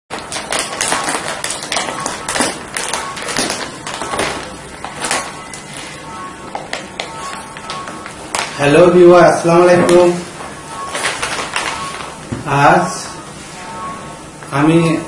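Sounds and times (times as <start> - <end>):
foil chip packets crinkling: 0.1 - 5.7, 10.9 - 12.1.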